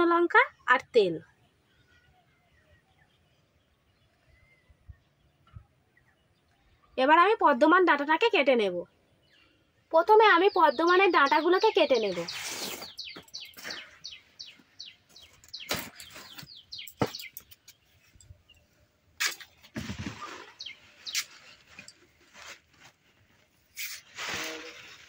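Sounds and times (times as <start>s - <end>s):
bird chirping: 8.9s - 22.5s
leaf rustling: 12.0s - 13.0s, 19.7s - 25.0s.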